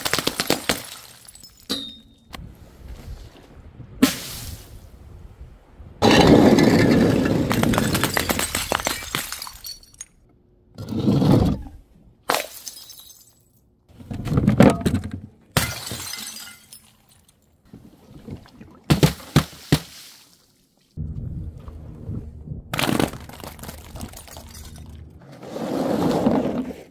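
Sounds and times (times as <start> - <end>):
glass bottles smashing: 0.1 - 2.3, 6.0 - 10.2, 12.3 - 13.6, 15.6 - 17.2, 22.8 - 25.1
glass fragments tinkling: 0.8 - 2.2.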